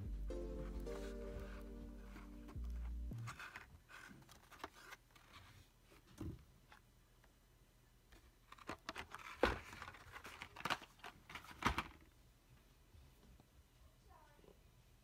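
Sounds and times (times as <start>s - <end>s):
packaging rustling: 1.5s - 5.5s, 8.4s - 12.0s.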